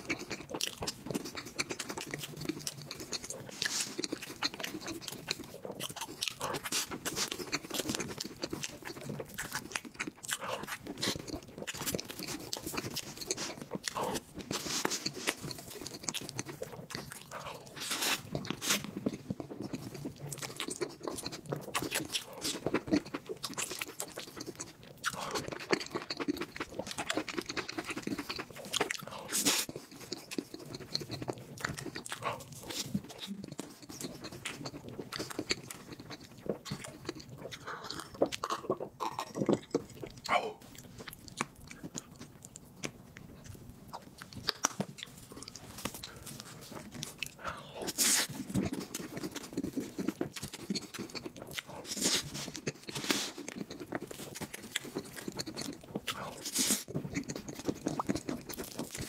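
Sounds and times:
person chewing: 0.0 - 59.0.

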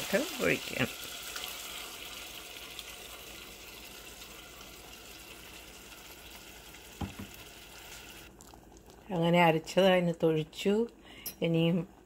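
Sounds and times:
food hissing in a pan: 0.0 - 8.3.

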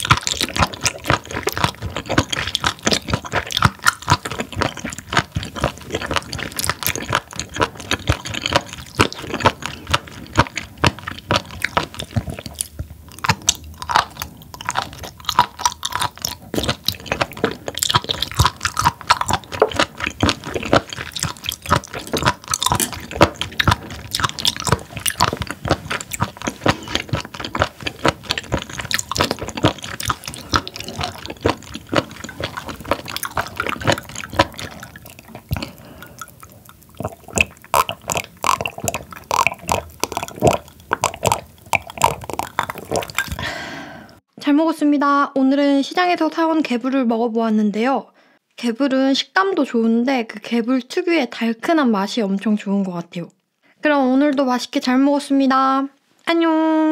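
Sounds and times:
wet crunchy chewing: 0.0 - 43.7.

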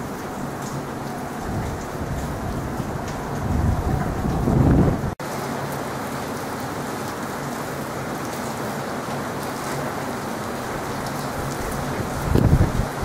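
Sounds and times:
low rumble of thunder: 0.0 - 5.2, 11.8 - 13.0
rain falling: 0.0 - 13.0.

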